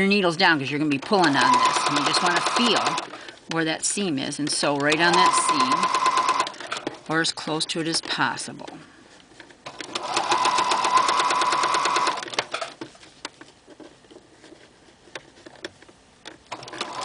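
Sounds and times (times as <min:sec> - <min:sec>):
sewing machine stitching: 0:00.9 - 0:03.3, 0:04.4 - 0:07.0, 0:09.6 - 0:12.8, 0:16.5 - 0:17.0.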